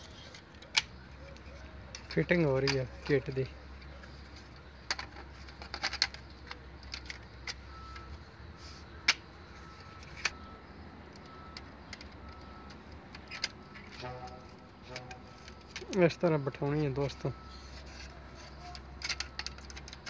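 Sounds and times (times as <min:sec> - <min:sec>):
plastic clicks and snaps: 0:00.3 - 0:03.1, 0:11.1 - 0:16.0.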